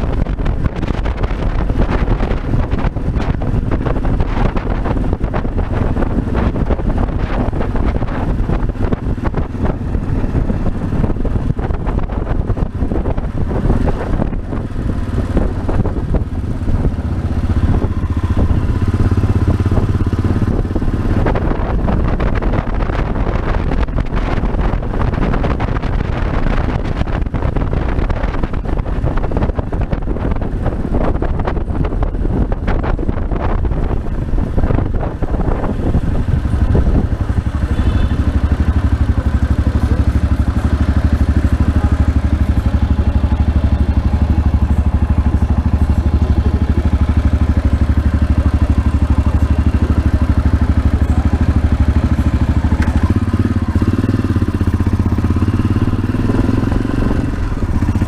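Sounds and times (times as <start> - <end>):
motorcycle engine running: 0.0 - 58.0
wind noise on microphone: 0.0 - 58.0.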